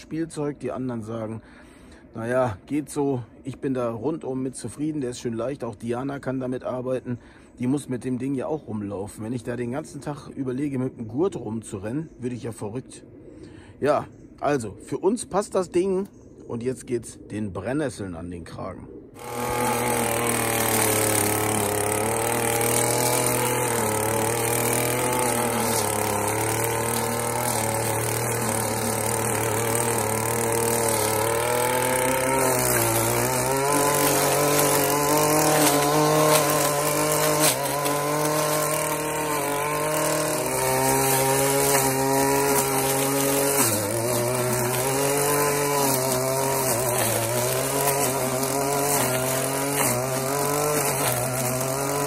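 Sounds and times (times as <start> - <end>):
line trimmer running at high speed: 19.2 - 52.0.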